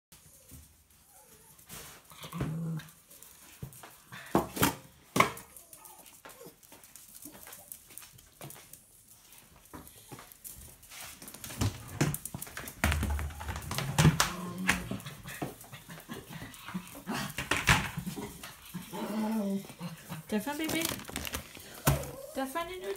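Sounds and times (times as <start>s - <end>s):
small dogs whimpering: 5.5s - 6.6s, 18.7s - 20.0s, 21.8s - 22.9s.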